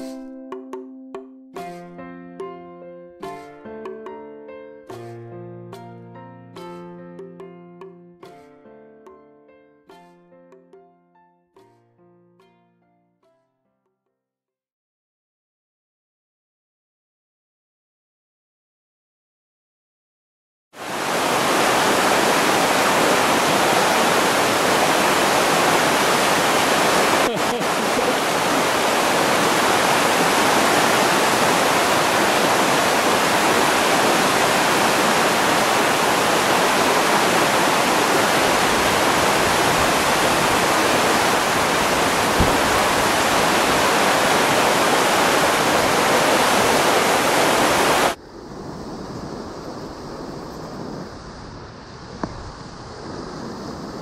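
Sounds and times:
stream rushing over rapids: 0:20.8 - 0:48.2.

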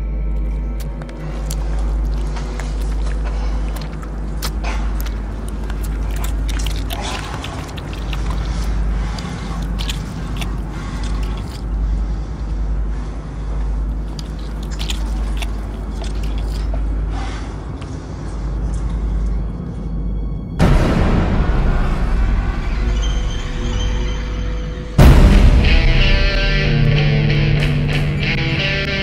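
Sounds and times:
steady low drone: 0:00.0 - 0:29.0
wet chewing and tearing flesh: 0:00.4 - 0:12.6, 0:13.5 - 0:17.3.

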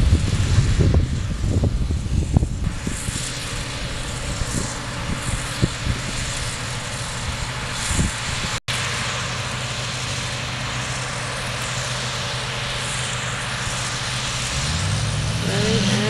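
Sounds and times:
wind thumps on microphone: 0:00.0 - 0:03.0
diesel engines droning: 0:00.0 - 0:16.0.

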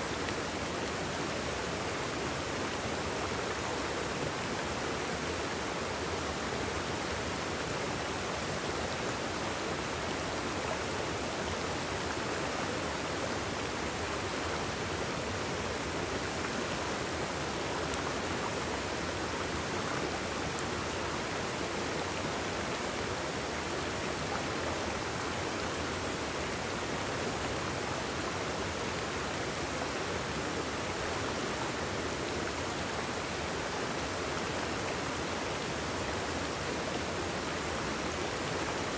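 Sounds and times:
stream rushing over rocks: 0:00.0 - 0:38.9.

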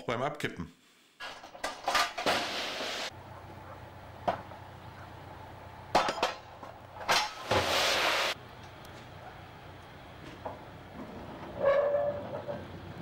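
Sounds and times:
metal clanks: 0:05.9 - 0:07.5.

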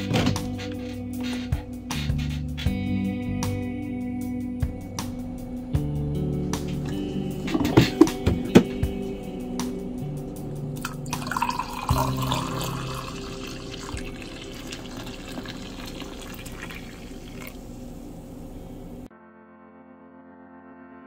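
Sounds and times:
coffee pouring into a mug: 0:10.8 - 0:17.8.

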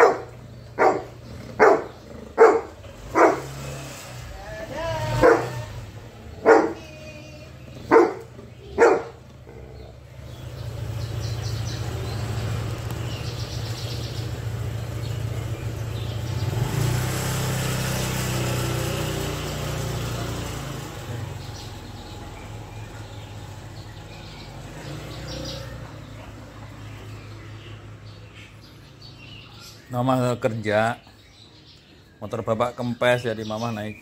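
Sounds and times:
dog barking: 0:00.0 - 0:03.6, 0:05.2 - 0:05.7, 0:06.4 - 0:06.8, 0:07.8 - 0:09.2
scooter engine running: 0:00.0 - 0:29.5.

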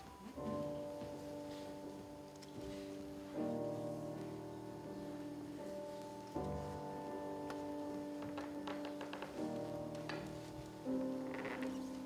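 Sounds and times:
slow instrumental music: 0:00.0 - 0:12.0.

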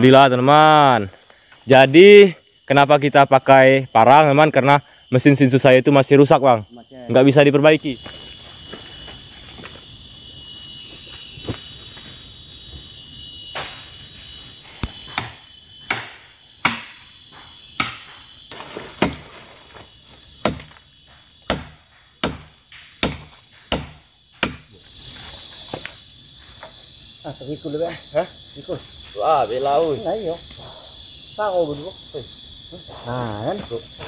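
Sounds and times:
insects droning: 0:00.0 - 0:34.0
machete chopping wood: 0:14.8 - 0:17.0, 0:19.0 - 0:19.2, 0:20.4 - 0:20.7, 0:21.5 - 0:24.7.

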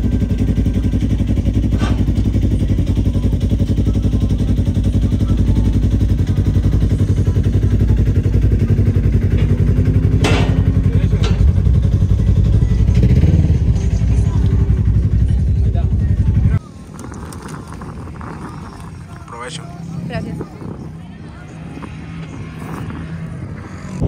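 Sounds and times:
off-road vehicle engine running: 0:00.0 - 0:24.0
loud clatter: 0:09.2 - 0:11.8.

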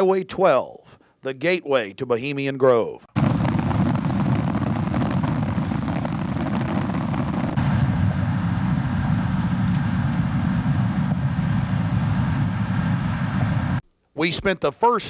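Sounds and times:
car engine and road rumble: 0:07.3 - 0:13.8.

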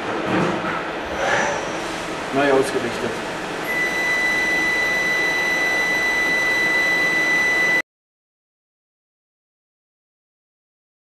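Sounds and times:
machine whining: 0:01.0 - 0:07.8.

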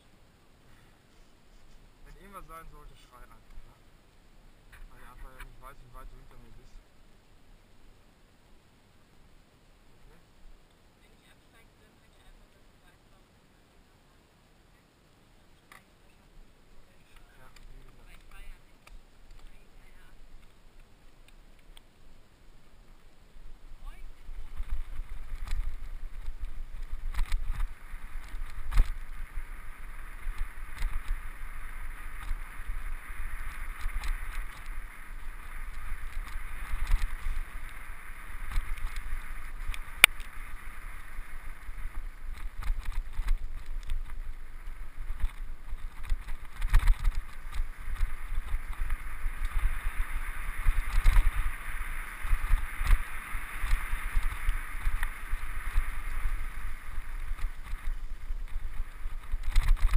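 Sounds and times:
wind rumbling on microphone: 0:16.4 - 0:59.9
bike rattling over bumps: 0:24.1 - 0:59.9.

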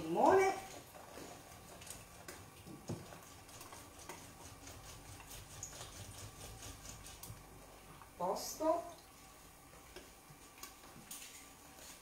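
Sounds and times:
lemon squeezed on hand juicer: 0:00.2 - 0:07.4.

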